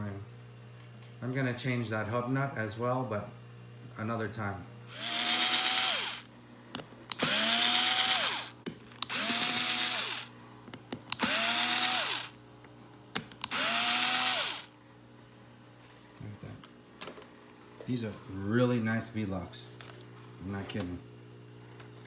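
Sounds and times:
cordless drill motor whine: 4.9 - 6.3, 7.1 - 10.3, 11.1 - 12.4, 13.4 - 14.8.

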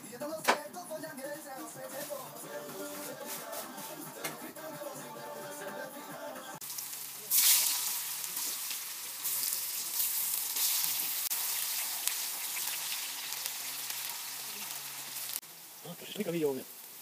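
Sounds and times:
loud hiss of food into fat: 6.6 - 17.0
potatoes sizzling in hot fat: 6.6 - 17.0.

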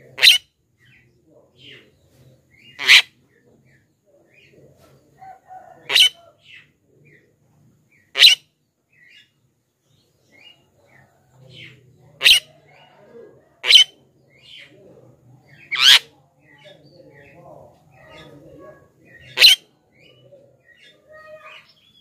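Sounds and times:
myna bird loud calls: 0.0 - 1.0, 2.6 - 3.3, 5.2 - 6.8, 7.9 - 9.4, 10.4 - 14.8, 15.5 - 22.0
faint bird chirps: 0.0 - 22.0.

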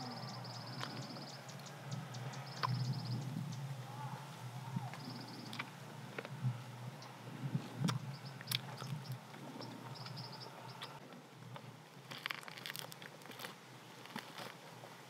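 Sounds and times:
close-up chewing with mouth smacks: 7.8 - 10.2.

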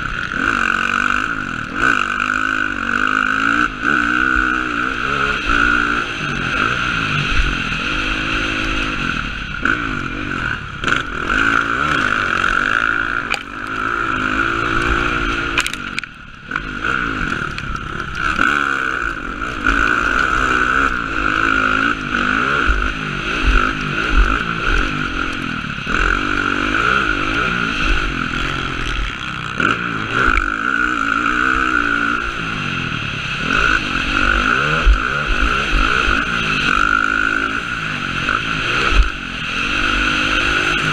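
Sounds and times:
dirt bike engine revving: 0.0 - 40.9.

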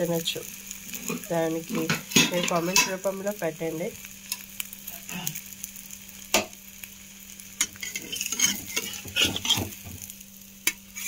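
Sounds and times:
omelette sizzling in hot oil: 0.0 - 11.0
metal spatula scraping a pan: 0.9 - 3.0, 7.6 - 10.0, 10.6 - 11.0.

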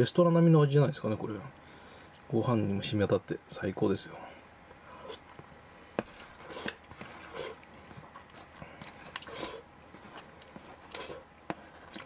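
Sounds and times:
person chewing food: 4.7 - 12.0.

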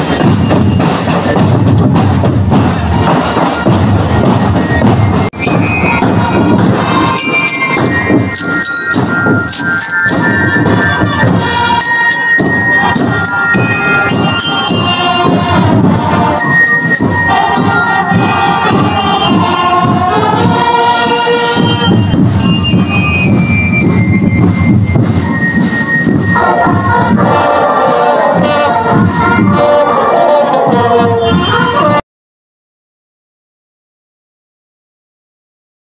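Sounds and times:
marching band playing: 0.0 - 32.0
bell lyres ringing: 3.0 - 20.0, 20.6 - 31.7.

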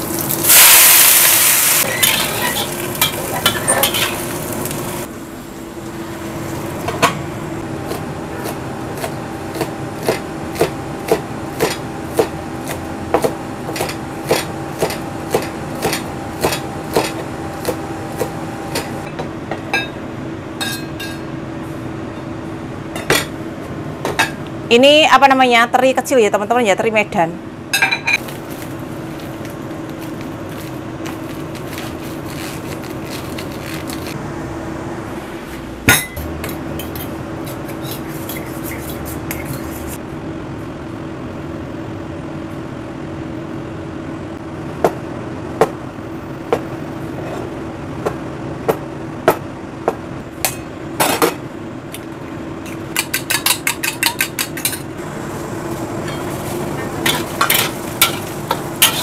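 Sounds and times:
range hood fan humming: 0.0 - 59.0
knife chopping on board: 7.9 - 18.3.

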